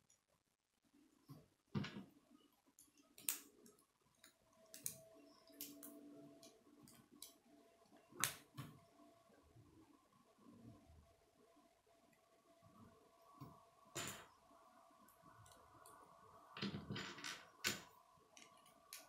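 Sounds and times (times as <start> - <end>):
plastic connectors clicking together: 2.8 - 7.4.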